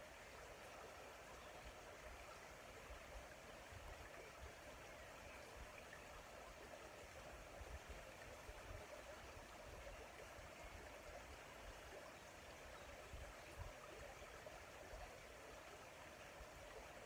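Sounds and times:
small stream flowing: 0.0 - 17.0.

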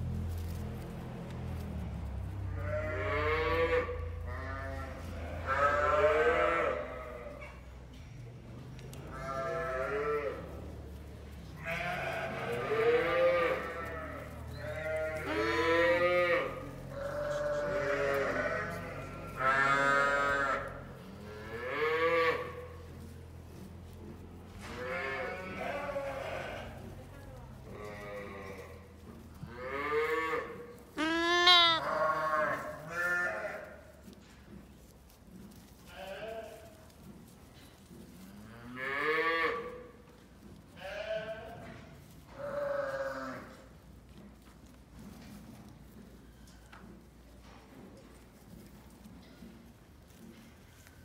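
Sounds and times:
lambs bleating: 2.5 - 7.5, 9.0 - 10.6, 11.6 - 23.0, 24.6 - 26.9, 27.6 - 33.9, 35.8 - 36.8, 38.4 - 40.1, 40.7 - 43.8.

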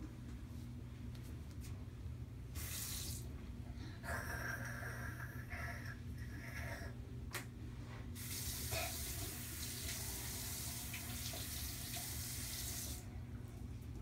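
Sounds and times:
sink tap running: 8.2 - 13.0.

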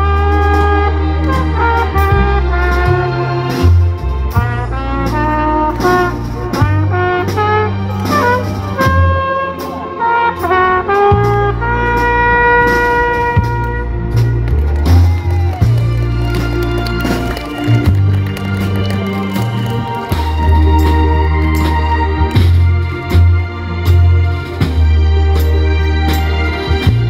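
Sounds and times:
trumpet playing slow melody: 0.0 - 14.5
amplified bass: 0.0 - 27.0
drums: 0.0 - 27.0.

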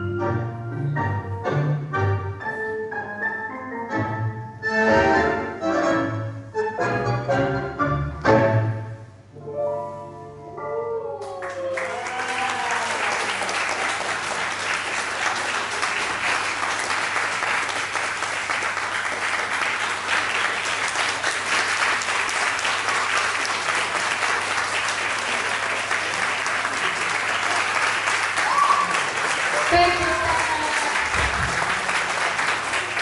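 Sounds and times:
tango music held notes: 0.0 - 11.8
audience applauding: 11.2 - 33.0.

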